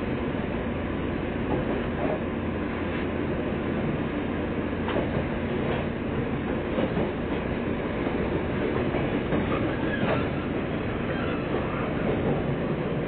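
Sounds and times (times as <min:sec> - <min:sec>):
train rumble from inside: 0:00.0 - 0:13.0
wheels clicking over rail joints: 0:08.0 - 0:12.5.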